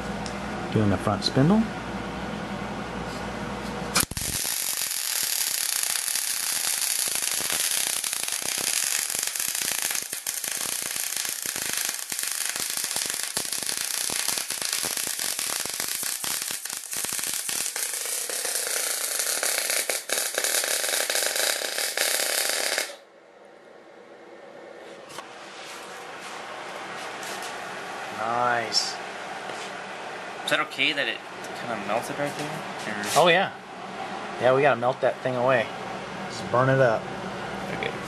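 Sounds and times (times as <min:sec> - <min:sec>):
welding arc crackling and sizzling: 0:03.9 - 0:23.0.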